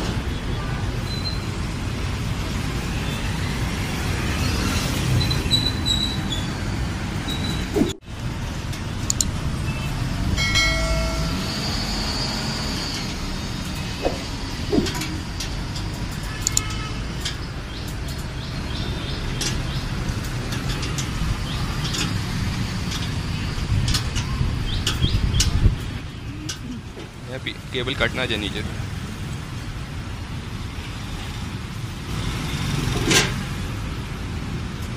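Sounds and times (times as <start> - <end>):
traffic rumble: 0.0 - 34.9
spanner clicking on bolt: 9.0 - 9.4, 14.8 - 18.3
short ringing tone: 10.4 - 13.0.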